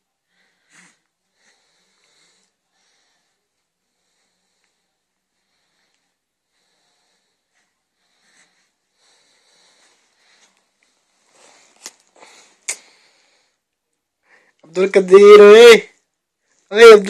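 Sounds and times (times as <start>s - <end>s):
breathing and snuffling: 0.2s - 14.6s.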